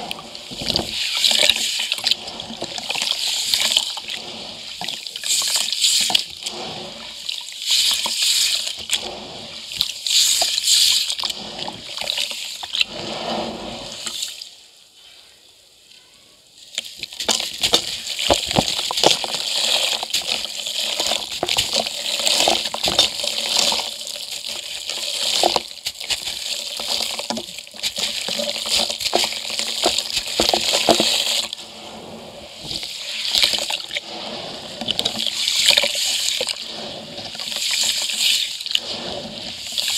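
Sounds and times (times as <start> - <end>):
concrete crunching by hand: 25.3 - 31.6.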